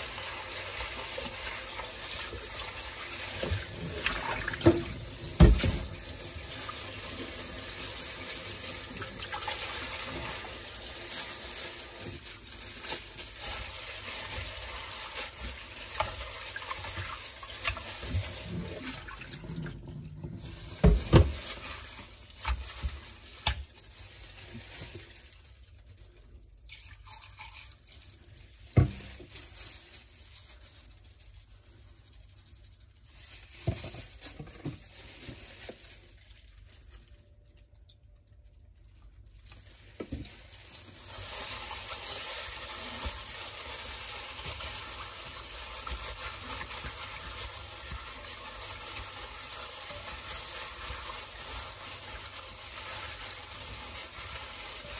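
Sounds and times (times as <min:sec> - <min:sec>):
hands rubbing chicken in water: 0:00.0 - 0:26.0, 0:38.2 - 0:54.9.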